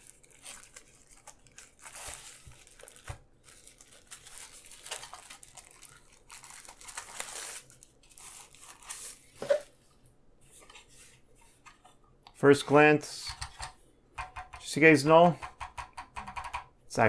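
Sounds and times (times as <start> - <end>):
plastic wrap crinkling and tearing: 0.0 - 9.5.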